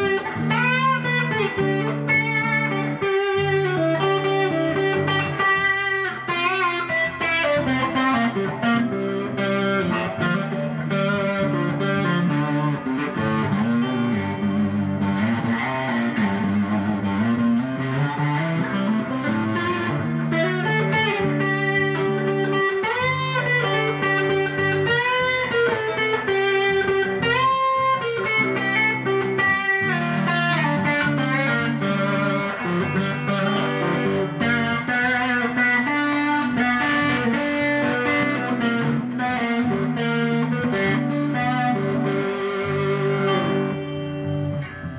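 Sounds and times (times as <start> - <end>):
electric guitar lead gliding notes: 0.0 - 44.9.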